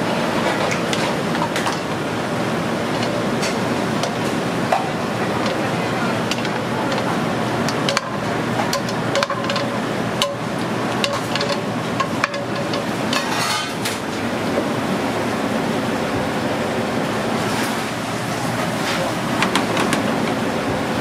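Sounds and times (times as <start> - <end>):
commercial kitchen background noise: 0.0 - 21.0
metal utensils clinking on pan: 7.7 - 14.0.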